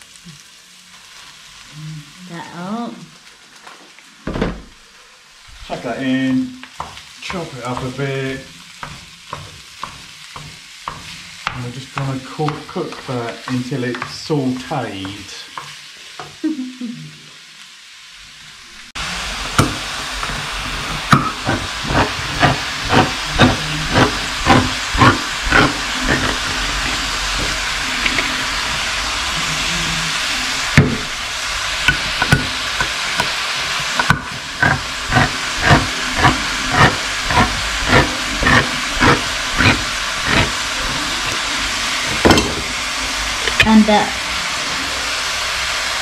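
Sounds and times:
mince frying in a pan: 0:00.0 - 0:46.0.

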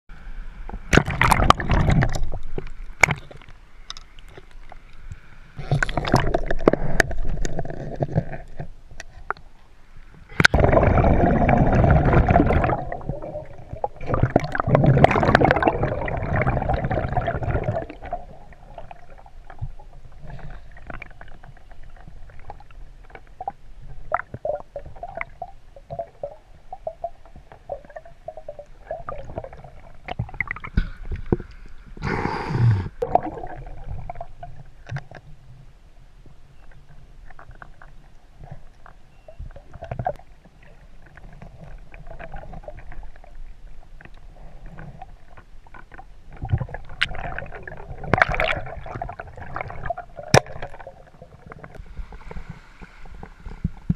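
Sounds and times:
underwater gurgling and bubbling: 0:00.8 - 0:03.4, 0:05.6 - 0:09.1, 0:10.3 - 0:35.8, 0:36.5 - 0:53.9
loud underwater rushing: 0:10.5 - 0:18.4.

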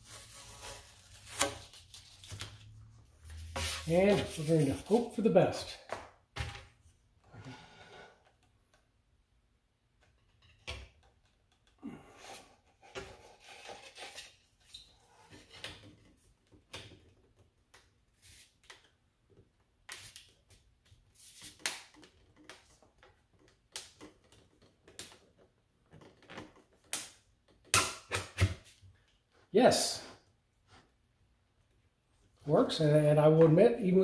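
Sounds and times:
knocks clicks and scrapes of lamp parts: 0:09.9 - 0:11.8.

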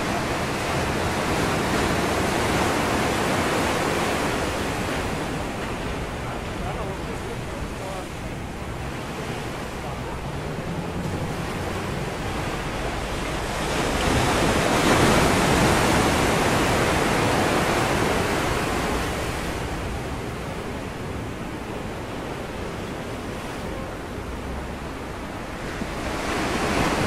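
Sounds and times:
surf breaking on rocks: 0:00.0 - 0:20.4, 0:25.3 - 0:27.0.

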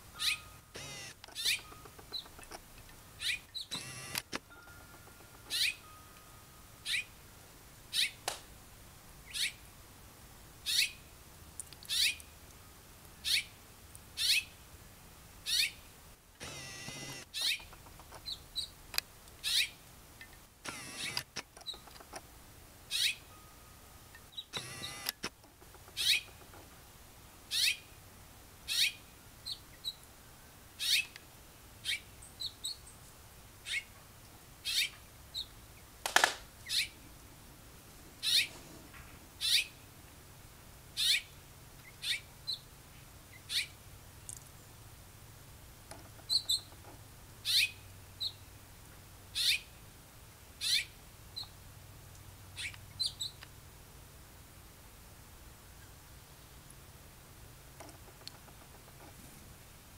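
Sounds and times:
cardinal chip calls: 0:00.1 - 0:02.5, 0:03.2 - 0:07.2, 0:11.9 - 0:12.2, 0:15.5 - 0:15.8, 0:16.4 - 0:18.7, 0:19.4 - 0:19.8, 0:20.6 - 0:22.0, 0:22.9 - 0:23.6, 0:24.2 - 0:26.4, 0:27.5 - 0:27.9, 0:49.4 - 0:49.7.

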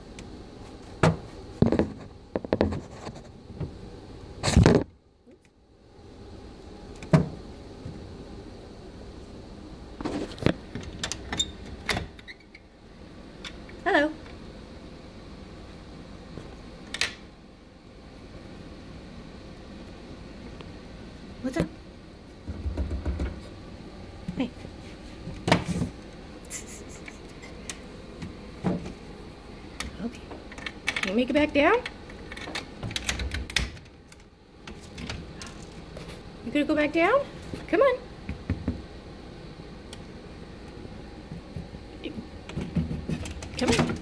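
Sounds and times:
low steady hum: 0:00.0 - 0:44.0
rabbit knocking and rustling: 0:22.4 - 0:23.5, 0:42.4 - 0:44.0.

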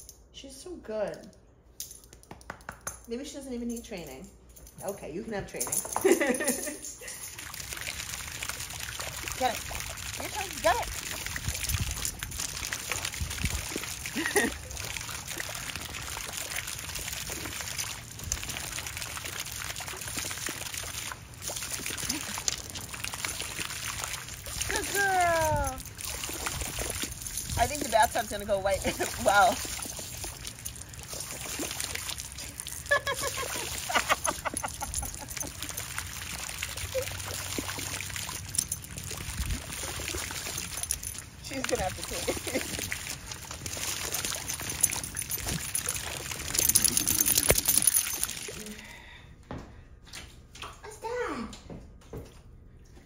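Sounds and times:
water spraying onto concrete: 0:07.3 - 0:48.6.

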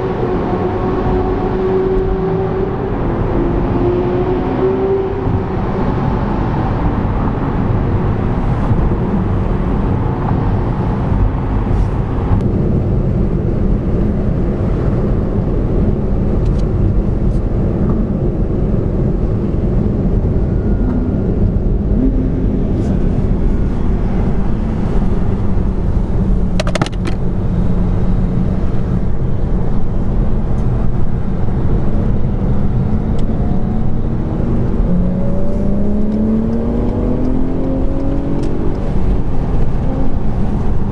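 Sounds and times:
car driving at motorway speed: 0:00.0 - 0:40.9
car accelerating: 0:13.6 - 0:40.9.

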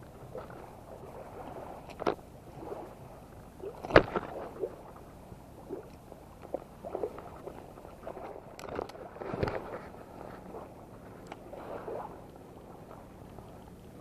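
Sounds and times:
fish rustling and clatter: 0:06.4 - 0:11.5.

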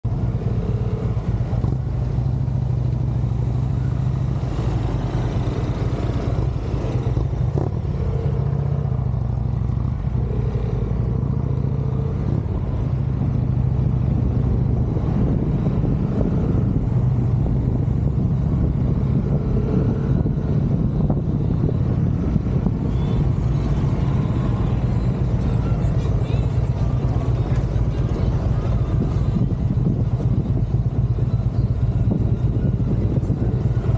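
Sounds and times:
motorcycle engine running: 0:00.0 - 0:33.9.

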